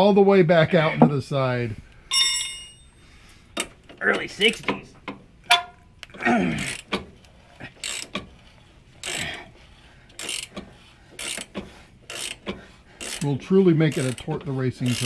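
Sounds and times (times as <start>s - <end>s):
ratchet wrench clicking: 7.8s - 8.3s, 9.0s - 9.4s, 10.1s - 15.0s.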